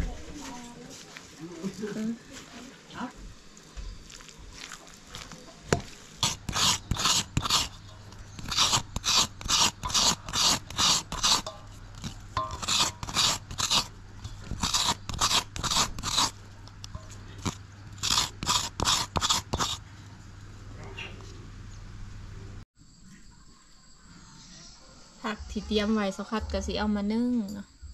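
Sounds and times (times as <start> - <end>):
coconut flesh scraping: 4.0 - 19.9.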